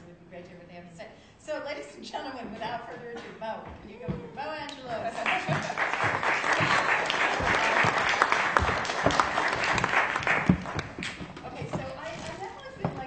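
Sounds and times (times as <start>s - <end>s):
audience applauding: 5.2s - 11.3s.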